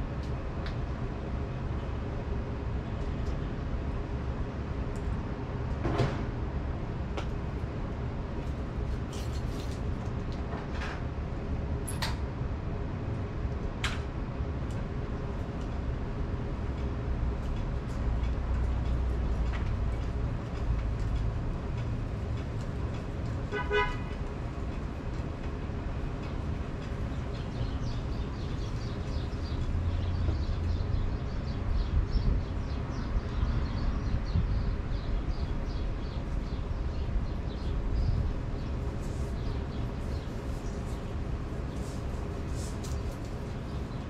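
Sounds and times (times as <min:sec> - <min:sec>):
vehicle horn toot: 0:23.5 - 0:24.1.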